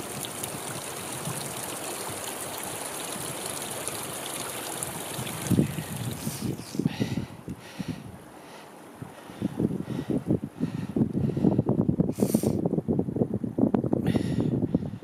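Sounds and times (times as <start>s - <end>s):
wind buffeting microphone: 0.0s - 3.8s, 4.8s - 8.2s, 9.0s - 15.0s
stream splashing over rocks: 0.0s - 6.6s.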